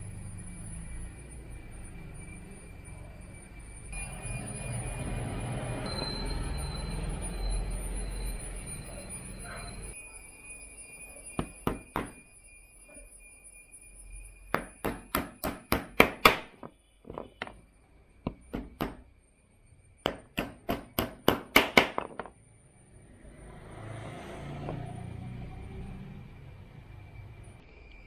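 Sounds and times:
small hammer tapping a nail: 14.6s - 16.5s, 20.1s - 22.1s.

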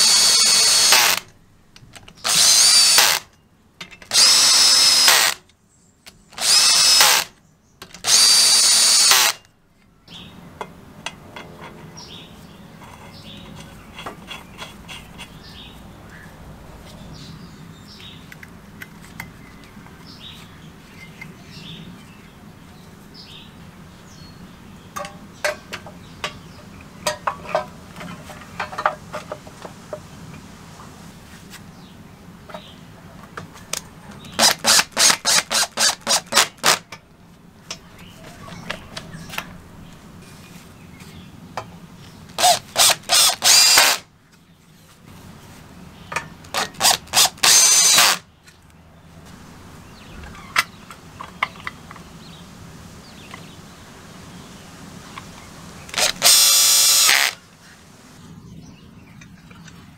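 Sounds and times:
power drill whining: 0.0s - 1.3s, 2.2s - 3.2s, 4.1s - 5.4s, 6.4s - 7.3s, 8.0s - 9.4s, 34.4s - 36.8s, 42.4s - 44.0s, 46.5s - 48.2s, 55.9s - 57.4s.

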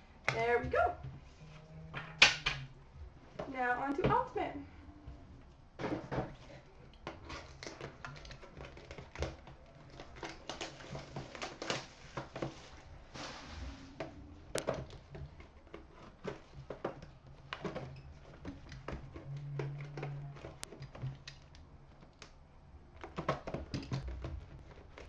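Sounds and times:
packaging rustling and crinkling: 5.8s - 25.0s.

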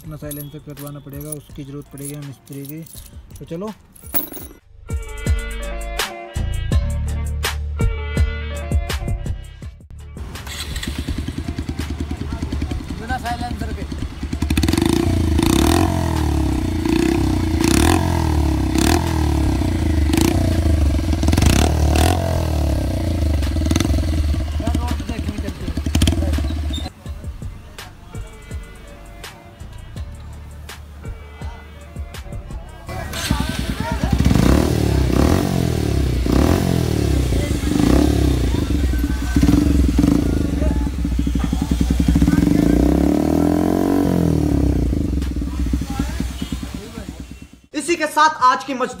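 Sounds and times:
motorcycle engine revving: 10.2s - 26.9s, 32.9s - 47.7s.

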